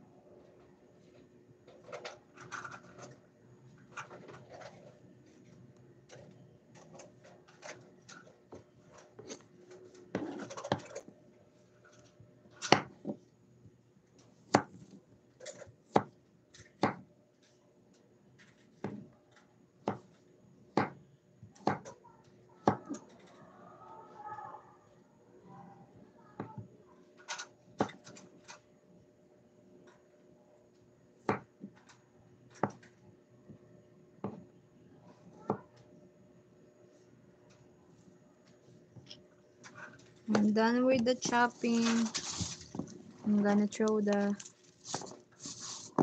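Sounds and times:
knife chopping on wooden board: 0:20.8 - 0:21.0.

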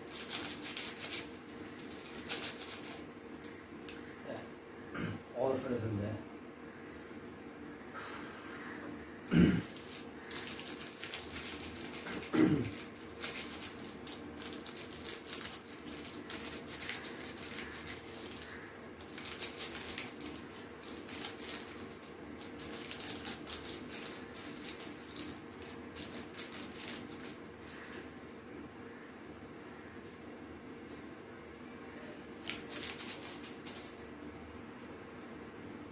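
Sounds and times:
plastic sachet crinkling: 0:00.0 - 0:03.0, 0:09.6 - 0:28.0, 0:32.3 - 0:34.0.

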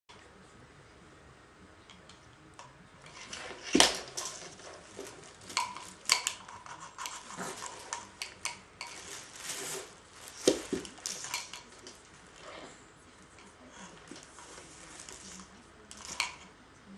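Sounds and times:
plastic toys clattering: 0:03.1 - 0:12.4, 0:13.4 - 0:16.5.

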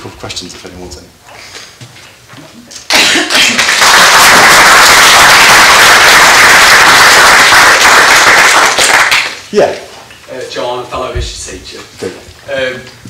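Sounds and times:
audience applauding: 0:02.9 - 0:09.5.

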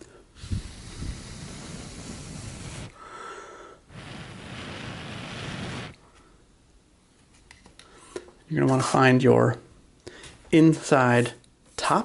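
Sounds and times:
person blowing air: 0:00.0 - 0:06.2.

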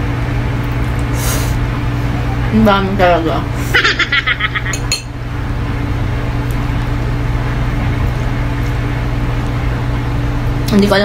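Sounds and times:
low electrical machine hum: 0:00.0 - 0:11.0
stifled laugh: 0:03.6 - 0:04.8.

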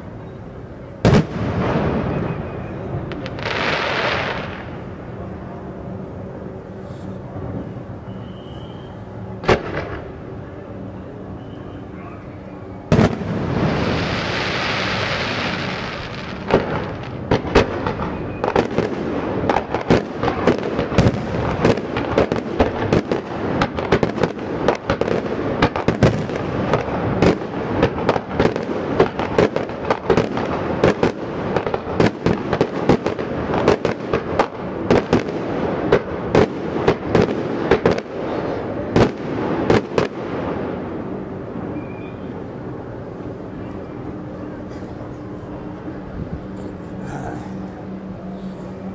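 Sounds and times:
firework bang: 0:01.0 - 0:04.8, 0:09.4 - 0:10.2, 0:12.9 - 0:38.2
rapid crackling firework bangs: 0:01.0 - 0:04.9, 0:09.4 - 0:10.2, 0:12.9 - 0:41.0
firework hiss: 0:01.2 - 0:05.0, 0:12.9 - 0:40.8.

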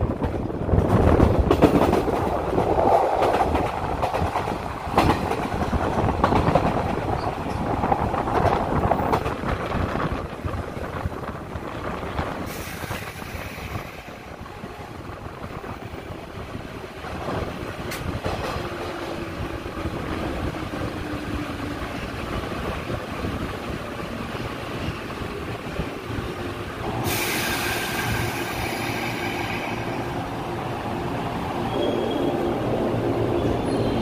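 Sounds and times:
electric train running on rails: 0:00.0 - 0:34.0
rush of air: 0:11.8 - 0:15.6, 0:25.5 - 0:31.0.

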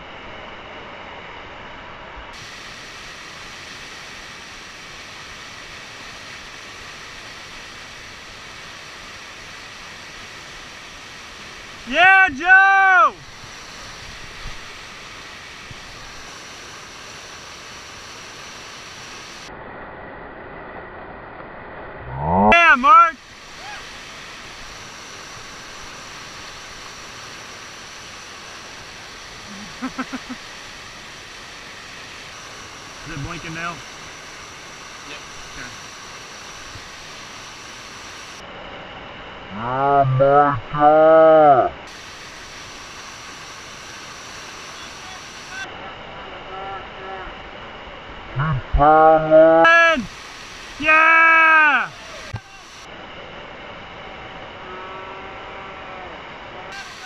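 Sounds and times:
whitewater rushing over rock: 0:22.4 - 0:38.4, 0:41.4 - 0:45.7, 0:48.6 - 0:52.9, 0:55.3 - 0:57.0
person's short vocal sounds: 0:29.5 - 0:30.2, 0:48.4 - 0:49.8.

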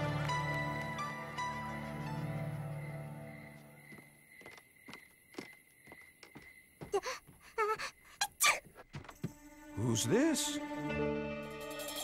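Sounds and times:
cartoon footsteps: 0:03.8 - 0:09.4
soft background music: 0:09.2 - 0:12.0.

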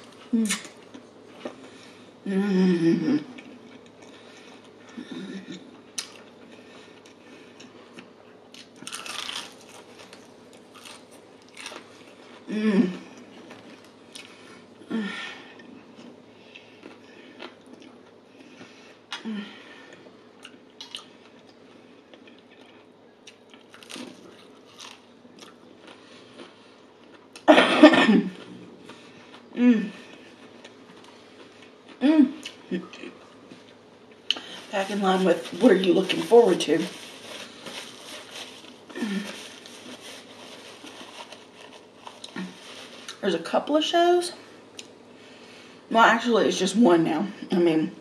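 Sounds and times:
faint chewing: 0:03.3 - 0:12.5, 0:15.6 - 0:19.2, 0:19.9 - 0:27.5, 0:36.9 - 0:43.2
crunch of crispy chicken skin: 0:08.5 - 0:12.2, 0:23.3 - 0:26.5
loud cough: 0:27.5 - 0:28.3.

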